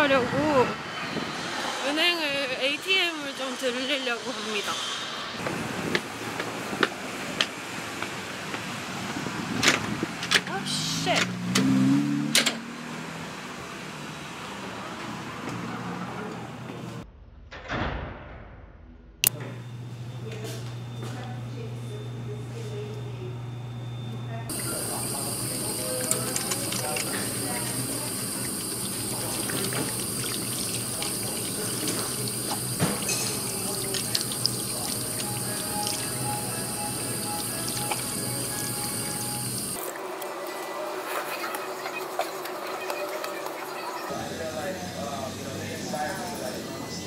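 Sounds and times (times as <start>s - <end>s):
street traffic noise: 0.0s - 17.0s, 20.3s - 47.0s
tap water running into sink: 24.5s - 39.8s
hands washing in water: 24.5s - 40.3s
water splashes: 24.5s - 40.3s.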